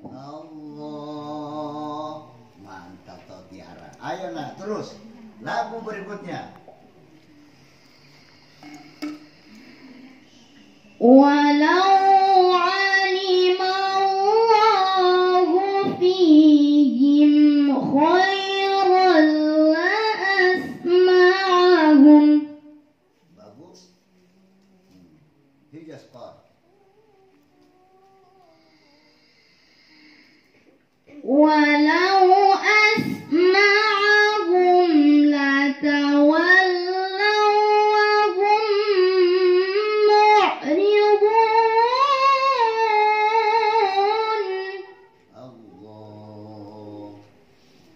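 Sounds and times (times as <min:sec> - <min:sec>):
woman reciting melodically: 0:00.0 - 0:23.2, 0:31.2 - 0:47.4
short breaths: 0:07.3 - 0:10.9.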